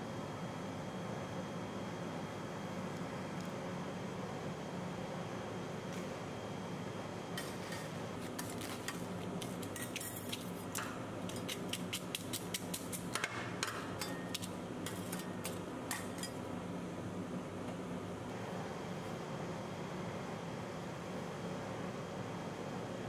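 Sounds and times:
metal spatulas clicking on steel plate: 9.8s - 16.4s.

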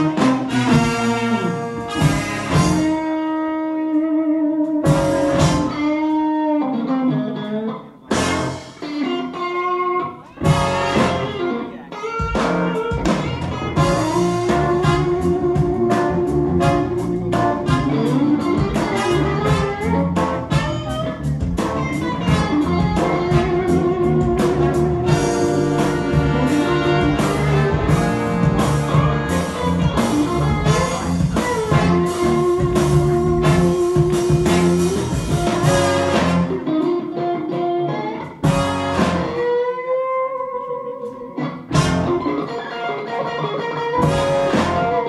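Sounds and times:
blues band playing: 0.0s - 45.0s.

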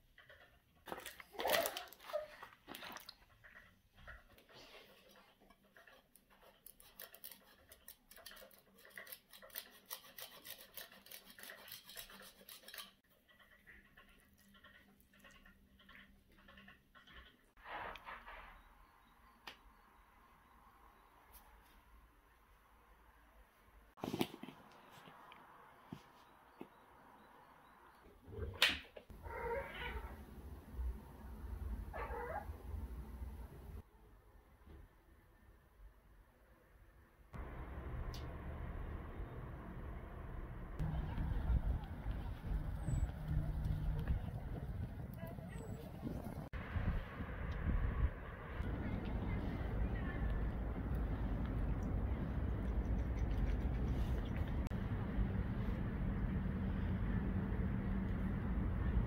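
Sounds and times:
cheese scraping on a grater: 4.9s - 13.1s
cat meowing: 29.2s - 30.2s
low rumble: 37.4s - 59.0s.

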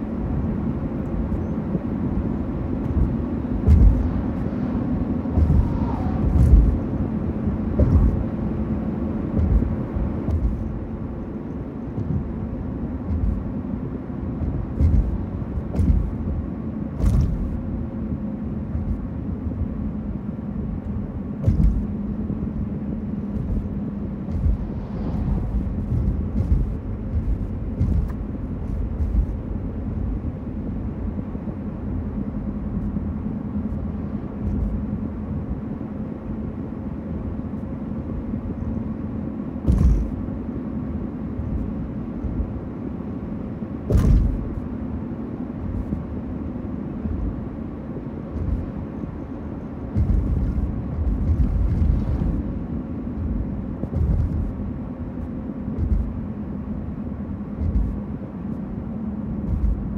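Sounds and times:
traffic drone of engines and tyres: 0.0s - 59.9s
low thumps: 2.8s - 10.9s, 11.9s - 13.6s, 14.2s - 17.8s, 21.4s - 22.0s, 23.2s - 30.1s, 39.6s - 40.2s, 43.9s - 44.6s, 49.9s - 56.3s, 57.5s - 58.1s, 59.4s - 59.9s.

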